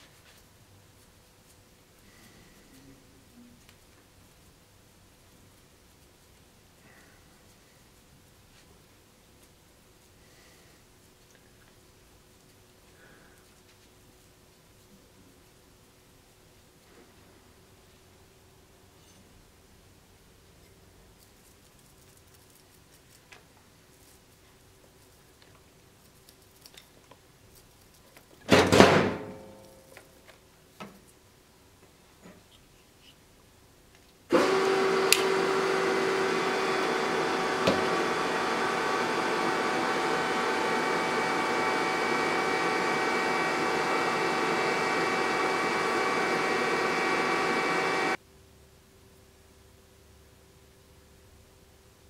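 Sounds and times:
motor-driven machine running: 0:34.3 - 0:48.2.

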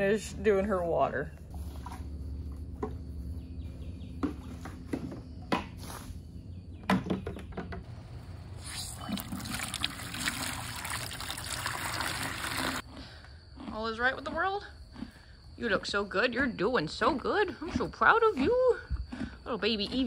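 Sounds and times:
hose water running into bucket: 0:08.6 - 0:12.8.

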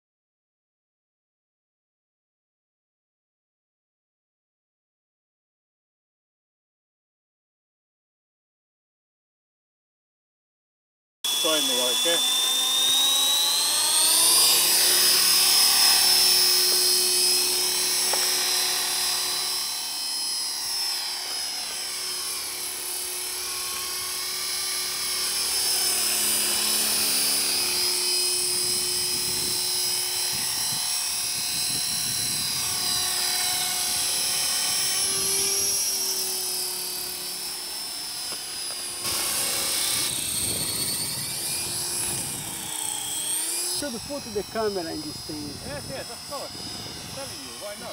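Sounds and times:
rc helicopter motor whine: 0:11.3 - 0:47.9
rotor hum: 0:11.3 - 0:47.9.

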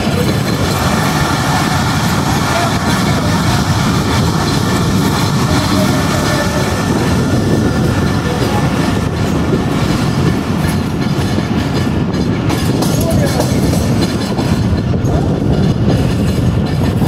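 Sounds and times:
train wheels on rails: 0:00.0 - 0:17.0.

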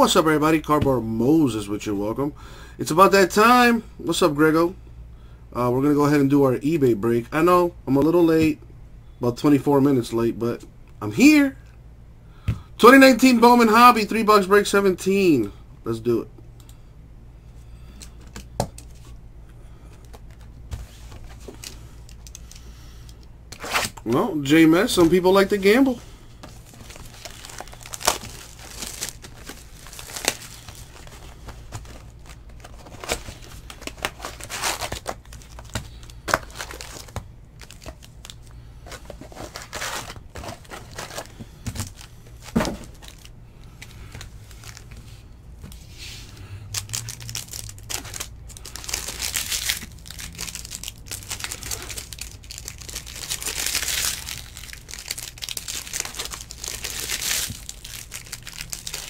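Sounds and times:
card pack wrappers crinkling: 0:20.0 - 0:22.7, 0:24.8 - 0:45.0, 0:46.6 - 0:59.0.

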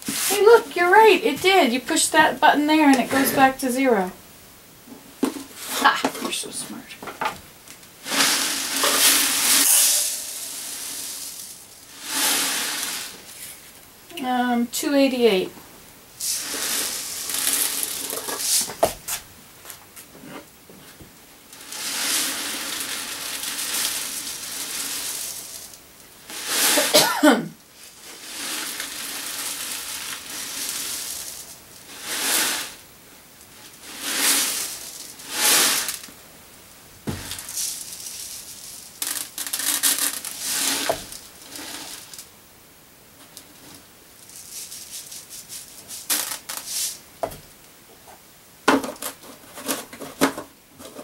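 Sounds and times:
granules pouring into a cup: 0:08.0 - 0:13.3, 0:16.2 - 0:18.7, 0:21.5 - 0:27.0, 0:27.8 - 0:32.8, 0:33.7 - 0:36.1, 0:37.3 - 0:42.3, 0:44.2 - 0:47.0.

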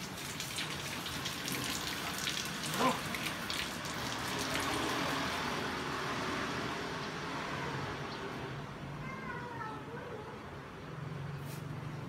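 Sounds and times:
hose water splashing on tiles: 0:00.0 - 0:07.2.

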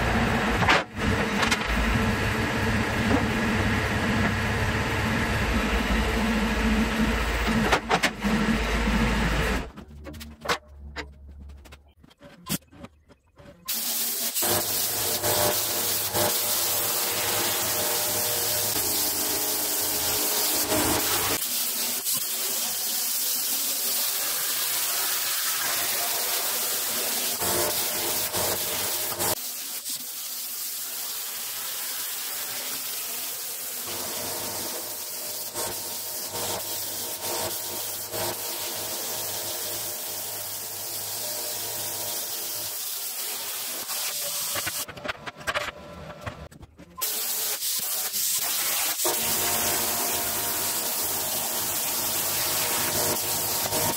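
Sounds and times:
plasma cutter hissing: 0:13.7 - 0:44.9, 0:47.0 - 0:53.9.

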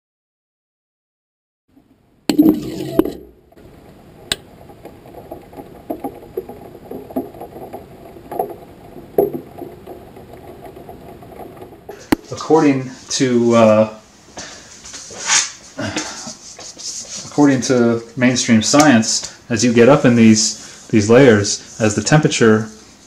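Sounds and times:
knocks and clicks: 0:02.3 - 0:12.3.

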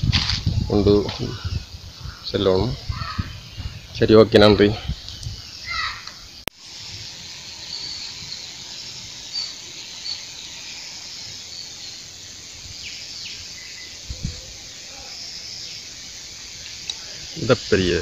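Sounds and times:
insects shrilling: 0:00.0 - 0:18.0
bird chirps: 0:07.0 - 0:18.0.

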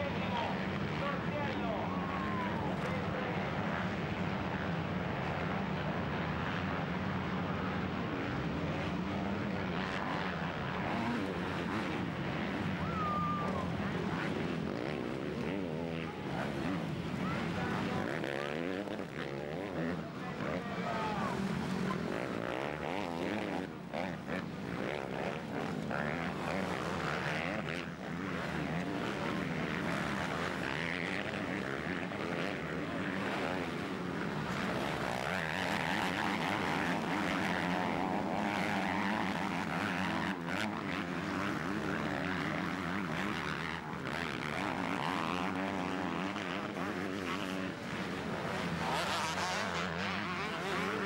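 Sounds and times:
motocross bikes revving: 0:00.0 - 0:51.0.

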